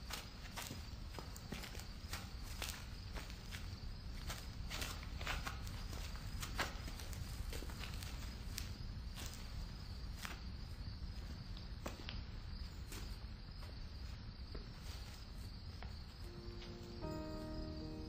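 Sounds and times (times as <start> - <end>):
footsteps on stone: 0.0 - 10.4
crickets chirping: 0.0 - 18.0
quiet music: 16.2 - 18.0.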